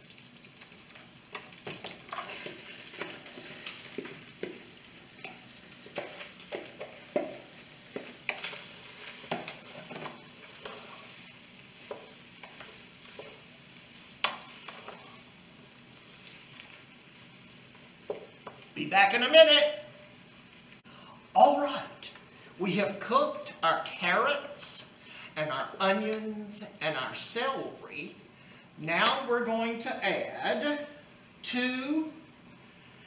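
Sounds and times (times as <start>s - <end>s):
vegetables sizzling in fat: 0.0s - 29.3s
wooden spoon scraping pot: 1.3s - 13.4s.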